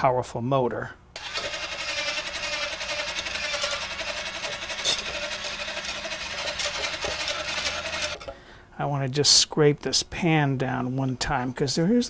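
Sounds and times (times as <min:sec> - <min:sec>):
electric whisk buzzing rattle: 0:01.2 - 0:08.2.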